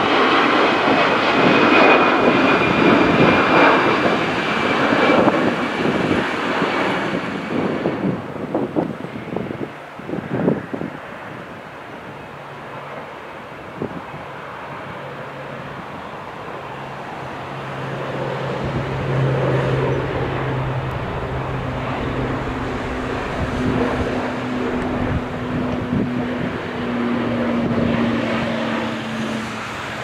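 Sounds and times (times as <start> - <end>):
turboprop airliner drone: 0.0 - 30.0.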